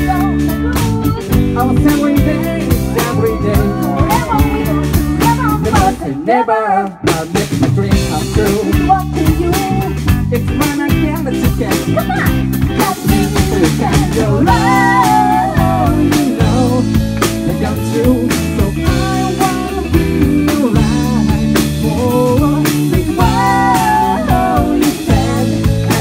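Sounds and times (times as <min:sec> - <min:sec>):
bass guitar: 0:00.0 - 0:26.0
drum kit beat: 0:00.0 - 0:26.0
electric guitar: 0:00.0 - 0:26.0
man singing: 0:00.0 - 0:26.0.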